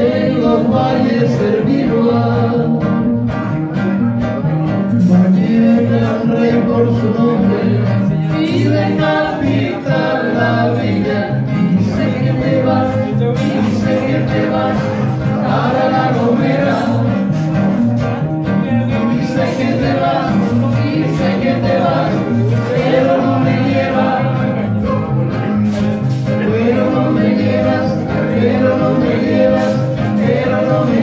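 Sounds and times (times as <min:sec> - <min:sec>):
person singing: 0:00.0 - 0:03.4, 0:04.3 - 0:31.0
classical guitars strummed: 0:00.0 - 0:31.0.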